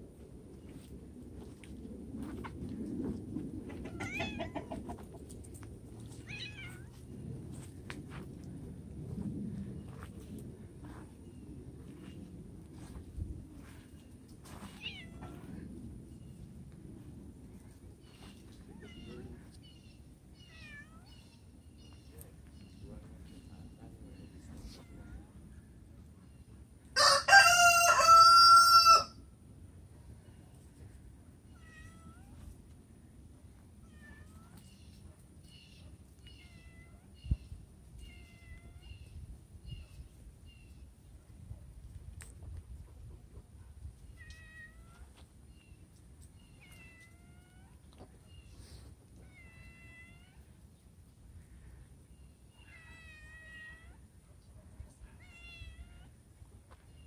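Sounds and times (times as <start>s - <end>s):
cat meowing: 3.9s - 4.5s, 6.2s - 6.9s, 14.7s - 15.5s, 20.4s - 21.2s, 31.5s - 32.4s, 36.3s - 37.2s, 49.2s - 50.5s, 52.6s - 54.0s, 55.1s - 56.2s.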